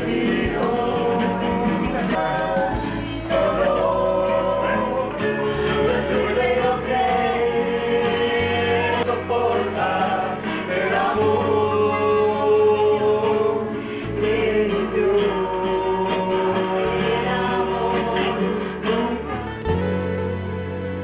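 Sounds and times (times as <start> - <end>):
held bass notes: 0.0 - 21.0
music with singing voices: 0.0 - 21.0.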